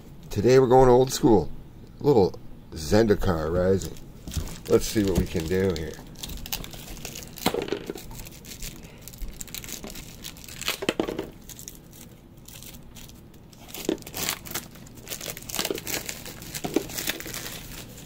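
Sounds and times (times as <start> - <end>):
plastic shrink wrap crinkling: 3.8 - 18.0.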